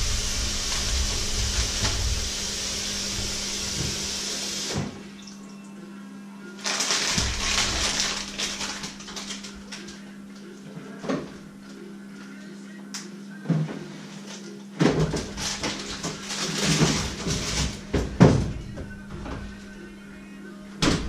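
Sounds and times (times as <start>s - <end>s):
tap water running into sink: 0.0s - 4.9s
low electrical hum: 0.0s - 21.0s.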